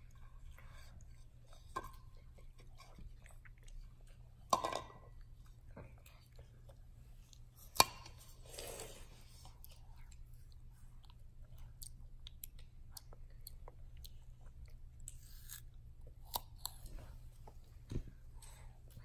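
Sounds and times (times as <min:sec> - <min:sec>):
children crunching raw apple: 0:11.8 - 0:17.1.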